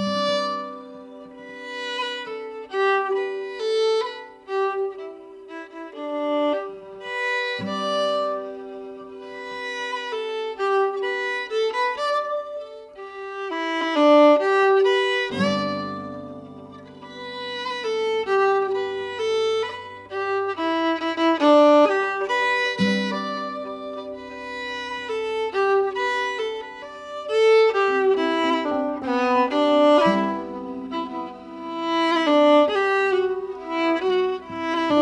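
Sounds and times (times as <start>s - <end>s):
instrumental background music: 0.0s - 35.0s.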